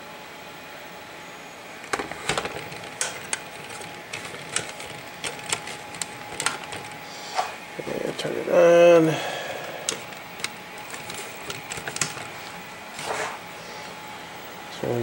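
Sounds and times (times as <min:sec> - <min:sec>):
hard objects clicking and knocking: 0:01.9 - 0:07.0, 0:09.8 - 0:13.1.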